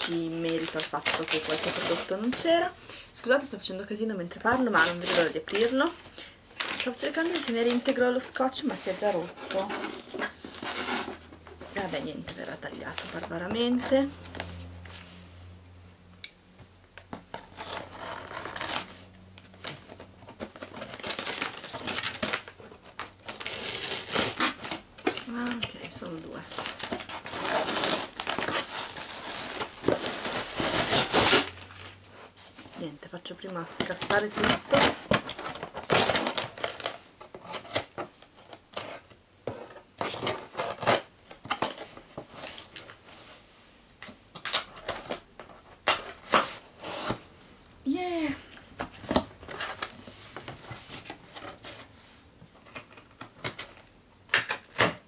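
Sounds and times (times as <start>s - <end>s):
cardboard parcel being torn open: 0.0s - 2.7s, 6.6s - 14.8s, 17.3s - 32.0s, 33.8s - 39.2s, 40.0s - 43.0s
tape tearing and crinkling: 0.0s - 2.7s, 4.5s - 6.0s, 6.6s - 14.9s, 17.1s - 32.7s, 33.7s - 43.0s, 44.3s - 47.2s, 48.7s - 51.9s, 52.6s - 55.0s
scissors cutting packing tape: 17.4s - 18.9s, 19.9s - 31.5s, 33.8s - 37.9s, 40.0s - 42.9s.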